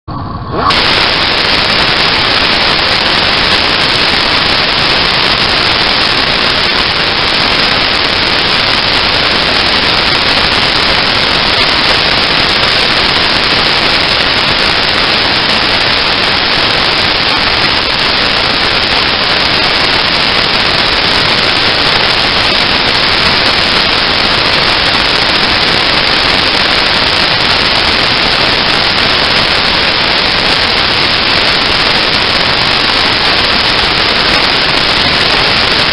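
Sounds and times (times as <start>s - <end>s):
static-like hiss: 0.1s - 35.9s.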